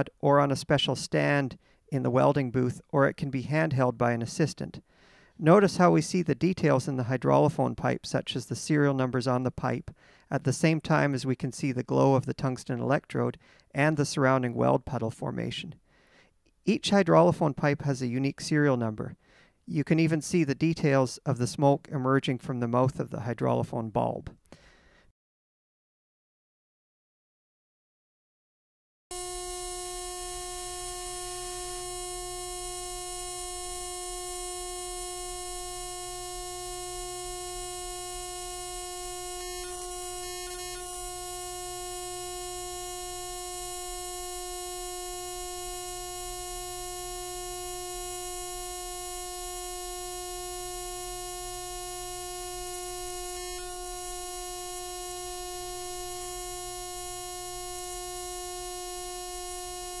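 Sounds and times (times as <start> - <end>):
welding arc buzzing: 29.1 - 60.0.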